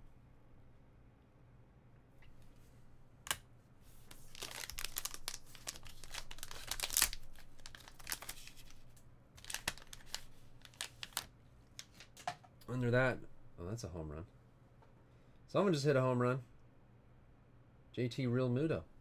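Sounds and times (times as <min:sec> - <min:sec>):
foil pouch crinkling: 0:04.0 - 0:12.1.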